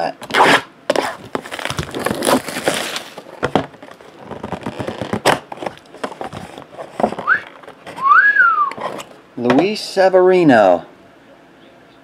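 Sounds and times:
paper rustling and crinkling: 0:00.9 - 0:08.0
short rising whistle: 0:08.0 - 0:08.8.

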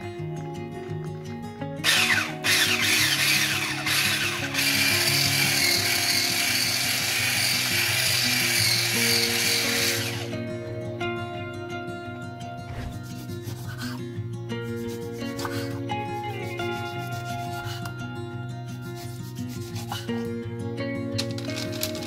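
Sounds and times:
background music: 0:00.0 - 0:22.0
electric whisk whirring: 0:01.8 - 0:10.4.

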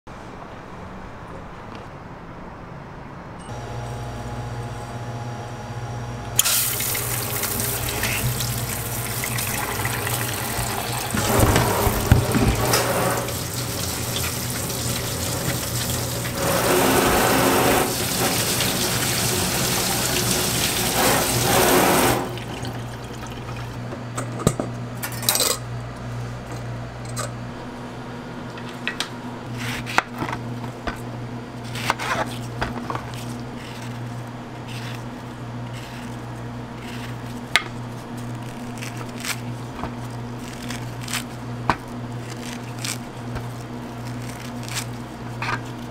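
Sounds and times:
tap water running into sink: 0:06.6 - 0:23.7.

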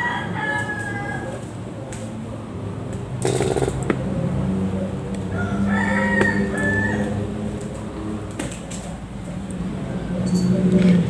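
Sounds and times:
rooster crowing: 0:00.0 - 0:01.5, 0:05.3 - 0:07.5.

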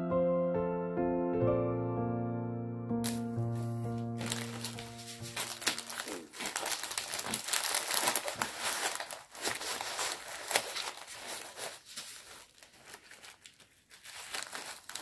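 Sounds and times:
plastic packaging crinkling: 0:03.0 - 0:15.0.

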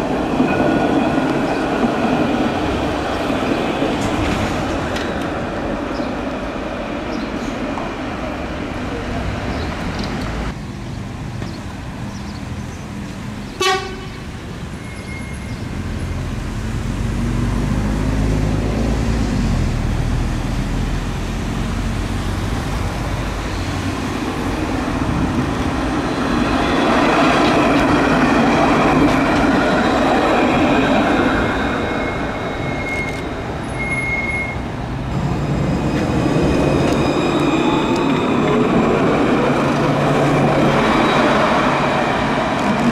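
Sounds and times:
tram running past: 0:00.0 - 0:42.9
tram horn toot: 0:13.6 - 0:15.5.

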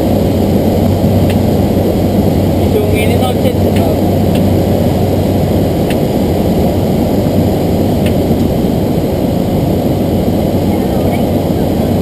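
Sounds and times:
low hum: 0:00.0 - 0:12.0
turboprop engine cabin drone: 0:00.0 - 0:12.0.

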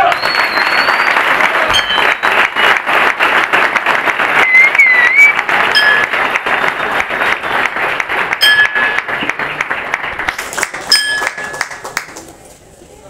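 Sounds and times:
short whistle: 0:00.0 - 0:02.8, 0:04.4 - 0:05.4
crowd applauding: 0:00.0 - 0:12.4.

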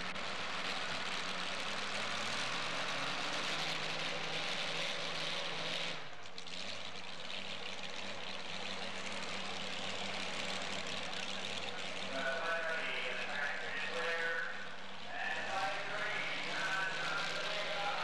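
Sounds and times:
truck engine idling: 0:00.0 - 0:18.0.

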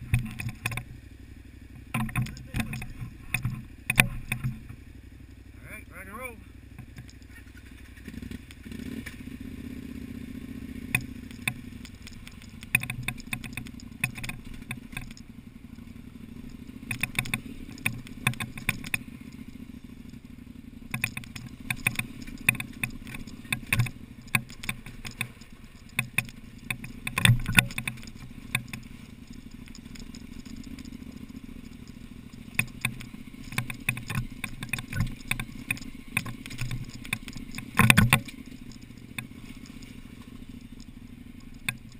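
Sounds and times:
motorcycle engine running: 0:00.0 - 0:41.9
stones clattering and knocking: 0:06.8 - 0:07.3, 0:10.9 - 0:15.3, 0:16.4 - 0:19.5, 0:20.9 - 0:41.9.

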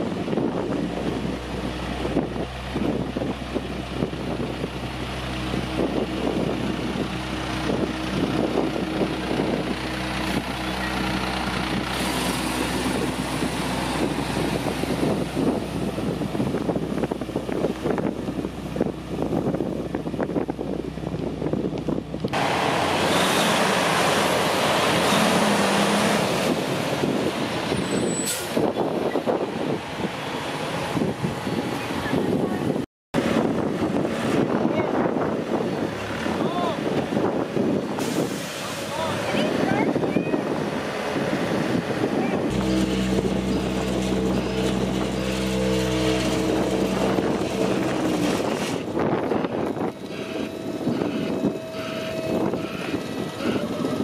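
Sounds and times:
diesel truck engine passing: 0:00.0 - 0:21.6, 0:22.2 - 0:54.0
rough machine noise: 0:04.8 - 0:18.9, 0:42.5 - 0:54.0.

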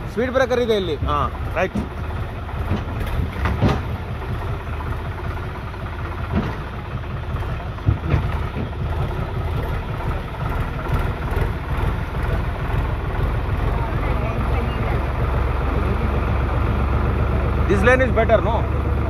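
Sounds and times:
tractor diesel engine running: 0:00.0 - 0:19.0
water churning around wheels: 0:00.0 - 0:19.0
short knocks: 0:02.6 - 0:04.1, 0:07.8 - 0:09.0.

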